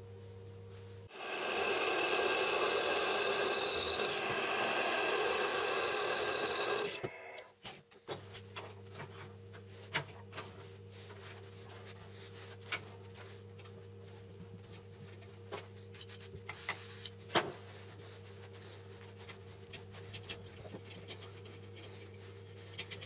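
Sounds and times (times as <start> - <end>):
electric drill boring steel: 1.1 - 7.4.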